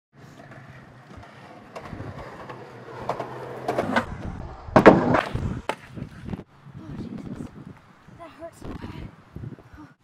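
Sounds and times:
skateboard wheels rolling on pavement: 0:00.2 - 0:08.6
skater crashing onto asphalt: 0:01.1 - 0:06.0
skateboard clacks: 0:04.7 - 0:06.1.

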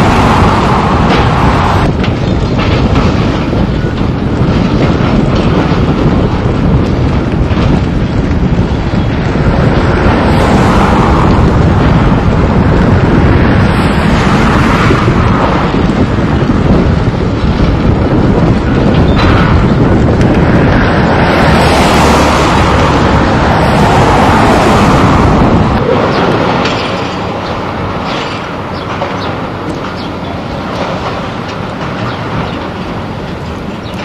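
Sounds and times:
excavator diesel engines: 0:00.0 - 0:34.0
wind buffeting microphone: 0:00.0 - 0:34.0.

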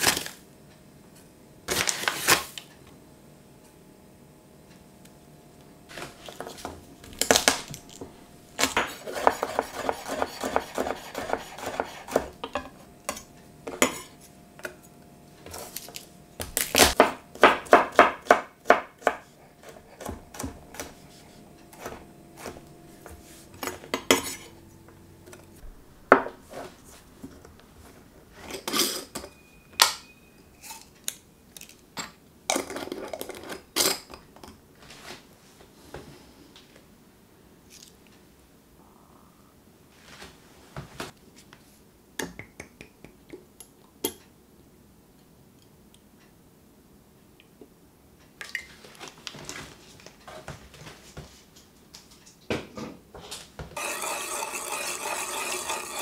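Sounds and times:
knife chopping on wooden board: 0:08.6 - 0:12.6, 0:16.4 - 0:21.0.

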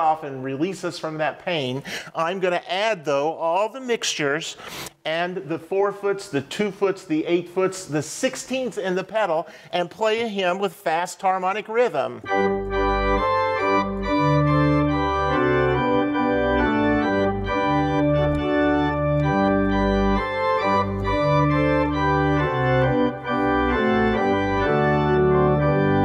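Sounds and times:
church organ playing a hymn: 0:11.3 - 0:26.0.

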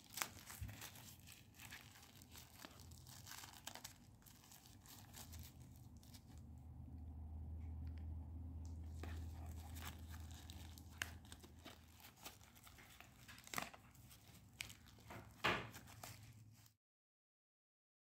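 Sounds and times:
packaging crinkling and tearing: 0:00.0 - 0:06.6, 0:08.7 - 0:16.7
low hum: 0:05.4 - 0:11.1.

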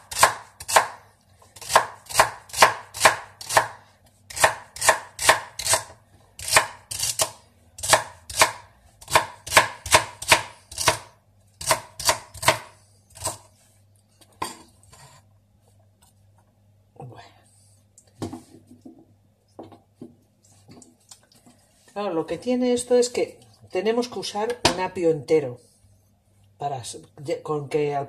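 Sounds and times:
knife chopping on wooden board: 0:00.0 - 0:01.0, 0:01.6 - 0:13.5.

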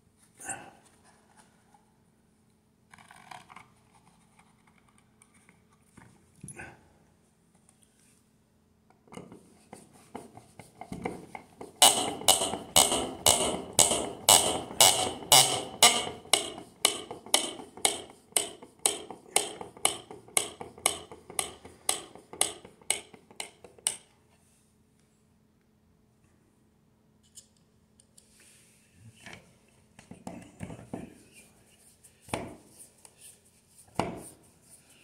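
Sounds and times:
screw creaking into wood: 0:11.8 - 0:17.0.

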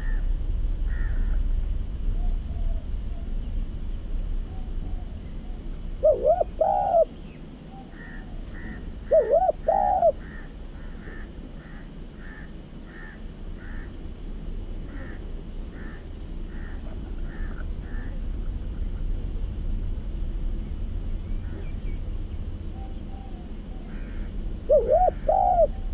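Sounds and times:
dove cooing: 0:04.5 - 0:14.0, 0:14.8 - 0:19.0, 0:22.6 - 0:25.9.

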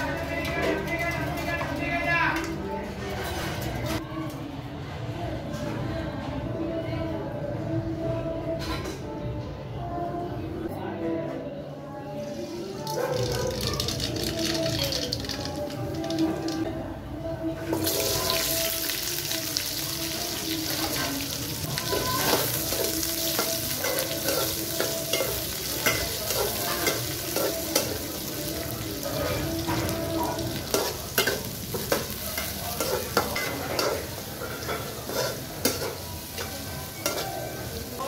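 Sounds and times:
onions sizzling in oil: 0:12.3 - 0:16.6, 0:17.8 - 0:38.0.

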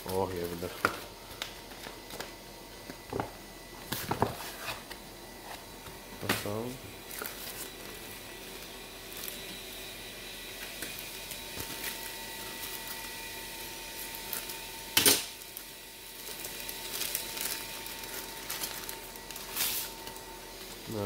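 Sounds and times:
plastic packaging crinkling: 0:07.0 - 0:09.5, 0:10.7 - 0:21.0.

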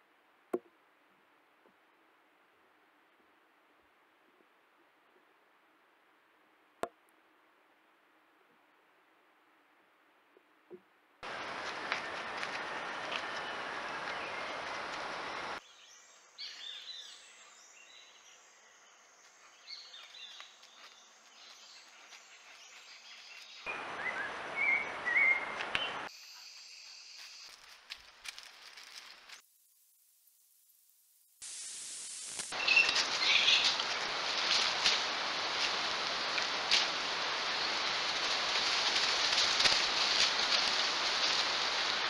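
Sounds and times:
forest background noise: 0:00.0 - 0:42.0
bird chirps: 0:15.6 - 0:27.6, 0:32.5 - 0:33.8.

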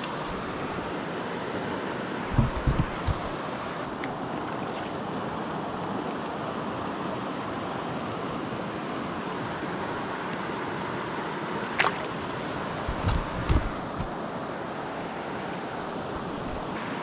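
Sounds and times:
stream running over rocks: 0:00.0 - 0:17.0
short splash in water: 0:11.7 - 0:12.1.

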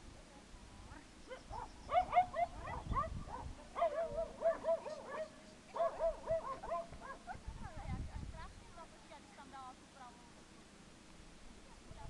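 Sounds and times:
dog yipping and barking: 0:01.3 - 0:07.4.

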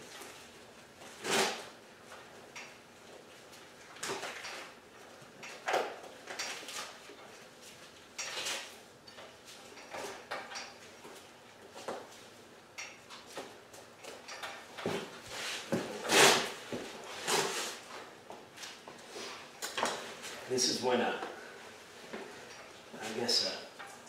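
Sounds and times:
hide scraping off carcass: 0:15.4 - 0:17.8.

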